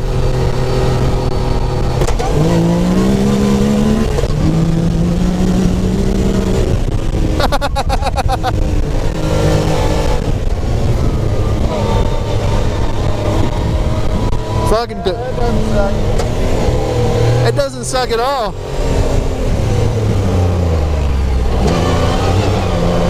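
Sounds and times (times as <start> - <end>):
engine at full throttle: 0.0 - 23.0.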